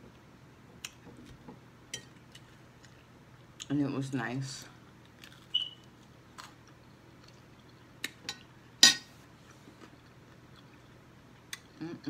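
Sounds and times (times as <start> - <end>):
crunchy chewing: 5.0 - 8.2.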